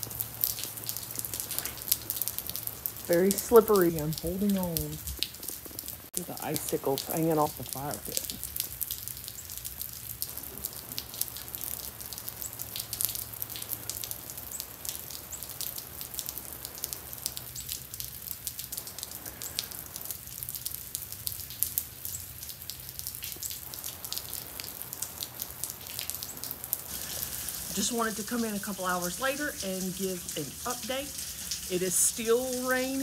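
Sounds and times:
freezing rain hissing: 0:00.0 - 0:33.0
drops ticking on ice and metal: 0:04.4 - 0:06.0.

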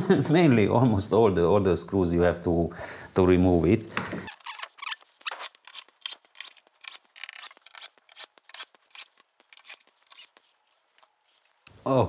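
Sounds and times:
screwdriver scraping ticks: 0:04.3 - 0:10.4.

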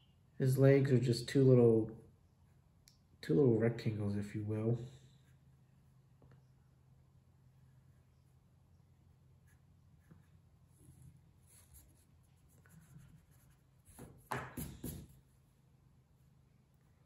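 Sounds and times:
pencil scratching on paper: 0:09.4 - 0:15.3.

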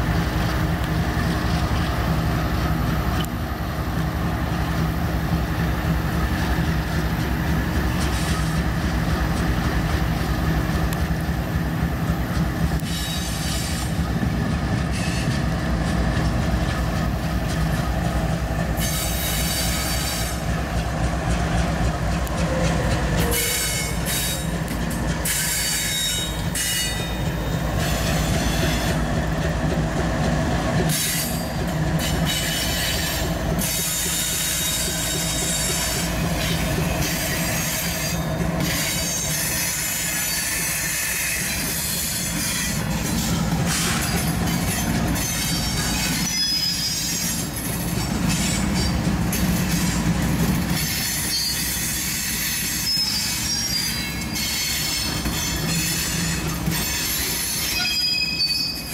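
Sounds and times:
diesel locomotive hum: 0:00.0 - 0:58.9
train wheels rumbling on rails: 0:00.0 - 0:58.9
high-pitched wheel squeal: 0:43.7 - 0:47.4, 0:51.0 - 0:58.9.

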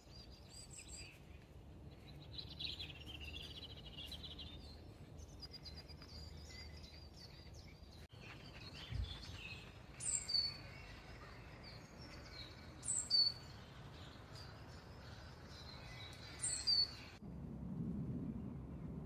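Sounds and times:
small birds chirping: 0:00.0 - 0:17.2
low rumble: 0:13.4 - 0:19.0.

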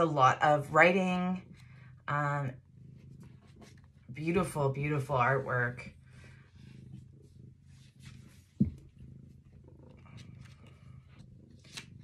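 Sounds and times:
cat purring: 0:00.0 - 0:12.0
paper pages turning: 0:11.5 - 0:12.0.

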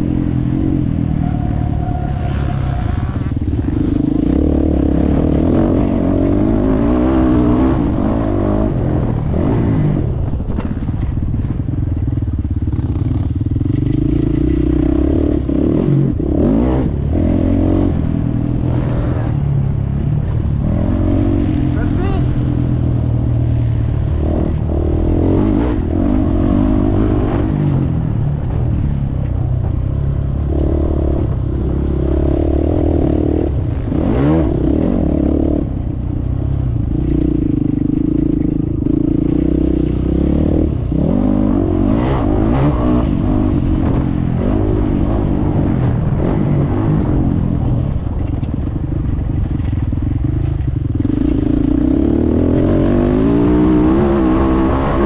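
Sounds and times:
motocross bike engine revving: 0:00.0 - 0:10.0, 0:12.7 - 0:28.1, 0:51.0 - 0:55.0.

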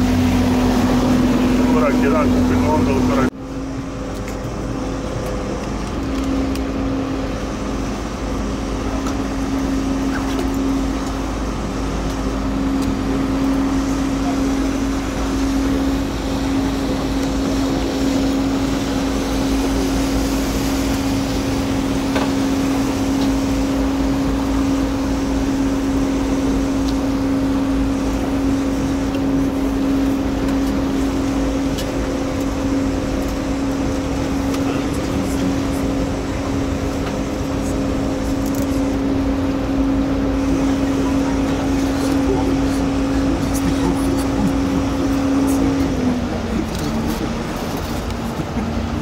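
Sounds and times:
boat diesel engine running: 0:00.0 - 0:49.0
water noise: 0:00.0 - 0:49.0.

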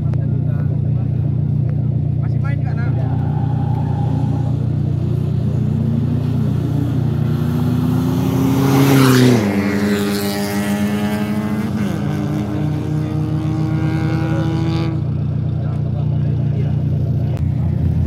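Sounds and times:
low engine drone: 0:00.0 - 0:18.0
car engine accelerating past: 0:02.9 - 0:15.5.

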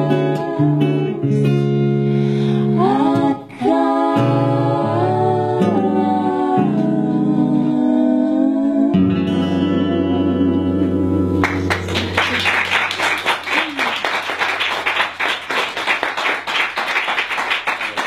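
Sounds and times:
women singing: 0:00.0 - 0:01.6, 0:02.4 - 0:12.2
acoustic guitar: 0:00.0 - 0:13.0
audience clapping: 0:11.4 - 0:18.0.

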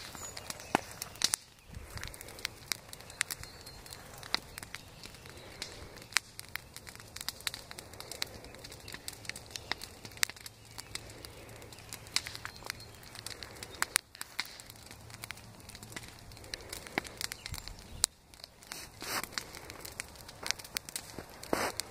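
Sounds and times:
bonfire crackling and popping: 0:00.0 - 0:21.9
rustling noise: 0:21.1 - 0:21.9.

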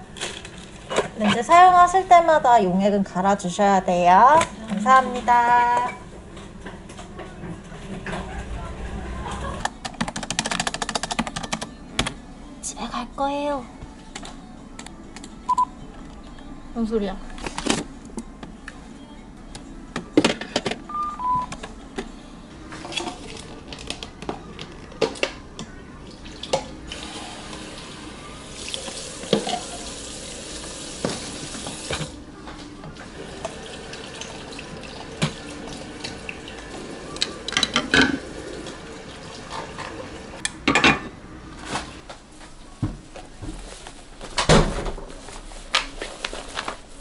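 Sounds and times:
water tap running into sink: 0:26.3 - 0:32.2, 0:33.0 - 0:40.4.

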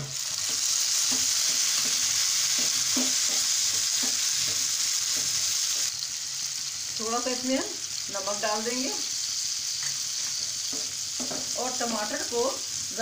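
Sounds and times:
tomatoes sizzling in a frying pan: 0:00.0 - 0:13.0
spatula scraping a pan: 0:00.4 - 0:05.9.

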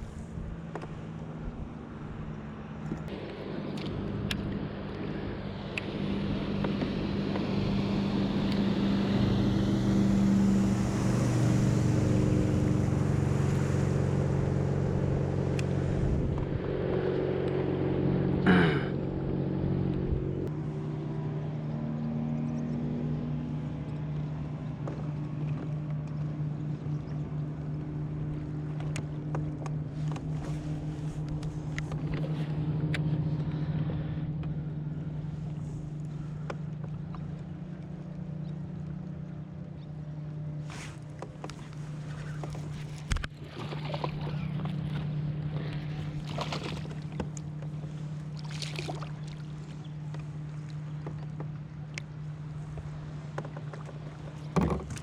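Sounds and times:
motorboat engine droning: 0:00.0 - 0:55.0.

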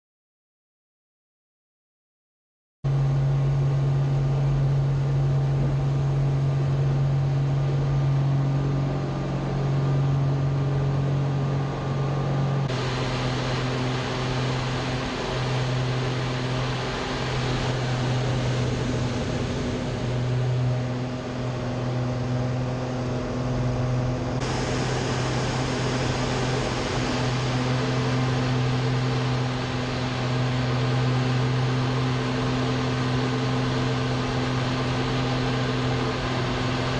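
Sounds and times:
aircraft engine droning: 0:02.9 - 0:36.9.

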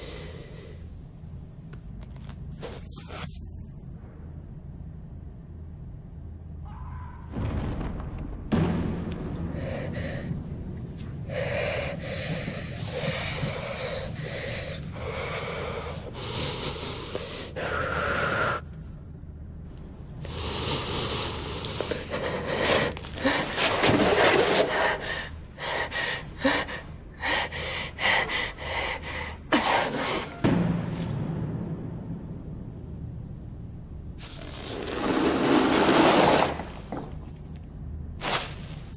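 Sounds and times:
low steady hum: 0:00.0 - 0:06.9, 0:08.3 - 0:35.4
woman breathing heavily and gasping: 0:09.4 - 0:18.7, 0:20.2 - 0:30.4.

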